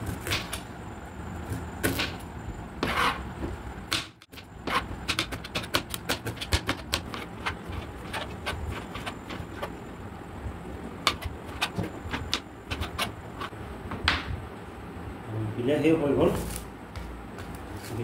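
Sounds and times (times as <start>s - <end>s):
knife scraping cutting board: 2.8s - 3.5s, 4.6s - 9.8s, 11.0s - 13.5s.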